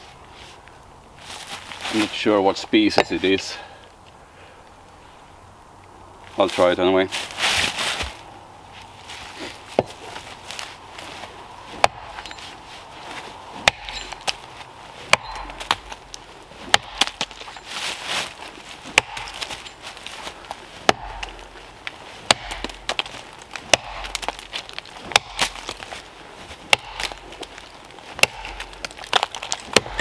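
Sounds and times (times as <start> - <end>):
axe chopping tree trunk: 9.7 - 10.3, 11.7 - 12.6, 13.6 - 17.9, 18.8 - 30.0.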